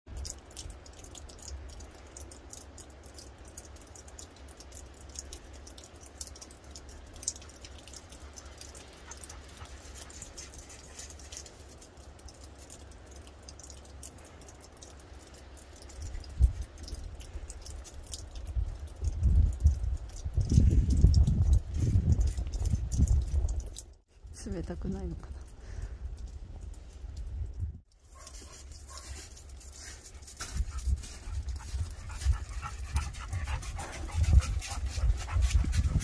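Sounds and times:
footsteps crunching in snow: 0:28.2 - 0:32.0.

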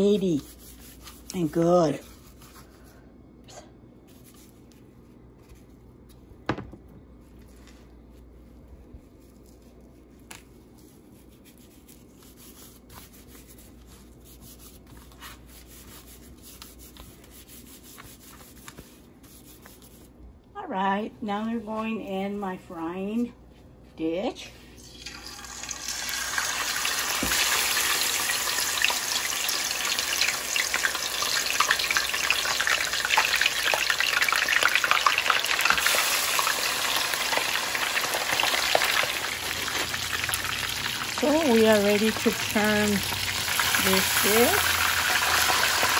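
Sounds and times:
gloved hand rubbing fish skin: 0:07.4 - 0:20.2
hot oil sizzling and crackling: 0:24.8 - 0:45.9.

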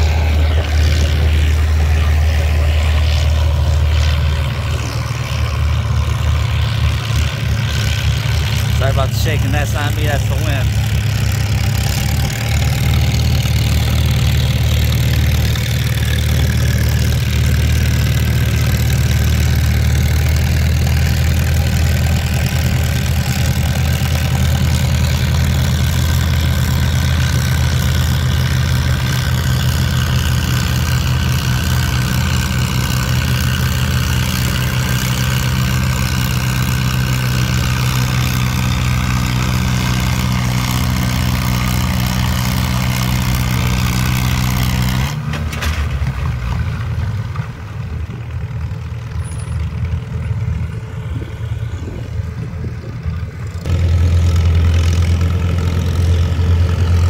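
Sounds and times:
tractor engine running: 0:00.0 - 0:57.0
wind on microphone: 0:50.8 - 0:53.4.

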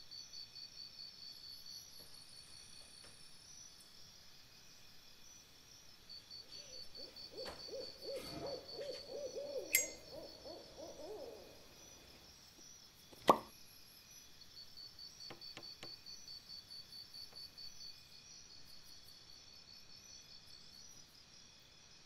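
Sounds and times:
low warbling hoots: 0:07.4 - 0:11.8
pulsing high chirp: 0:09.5 - 0:11.5
lighter lid click: 0:09.7 - 0:10.0.

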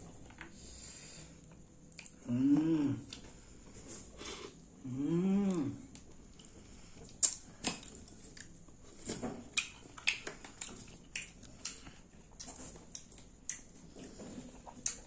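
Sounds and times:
chewing: 0:01.9 - 0:02.2, 0:05.5 - 0:15.0.

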